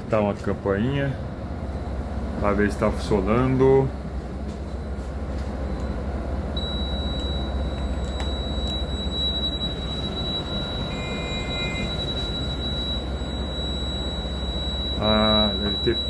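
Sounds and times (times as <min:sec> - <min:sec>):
bus engine idling: 0:00.0 - 0:16.0
high-pitched electronic tone: 0:06.6 - 0:16.0
low two-note tone: 0:06.6 - 0:16.0.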